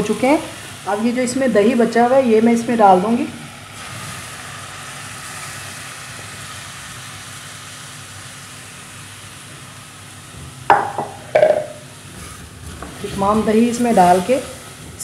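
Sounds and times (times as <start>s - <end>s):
chicken frying with steady sizzle: 0.0s - 15.0s
metal spoon clanking on pot: 10.7s - 11.8s.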